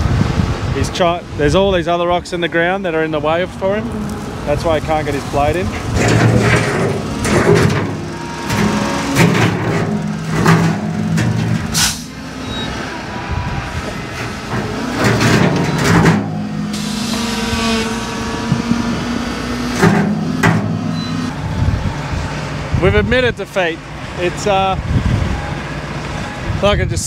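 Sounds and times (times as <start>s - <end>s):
diesel engine running under load: 0.0s - 27.0s
loader bucket knocking and scraping: 3.5s - 12.9s, 13.6s - 21.3s.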